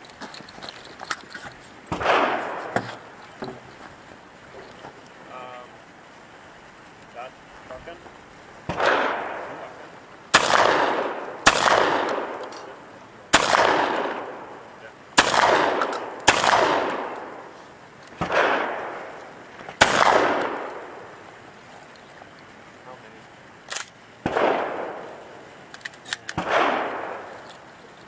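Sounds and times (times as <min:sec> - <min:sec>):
shotgun blasts with echo: 0:01.9 - 0:03.1, 0:08.7 - 0:14.6, 0:15.2 - 0:17.5, 0:18.2 - 0:19.2, 0:19.8 - 0:21.1, 0:24.2 - 0:25.2, 0:26.2 - 0:27.4.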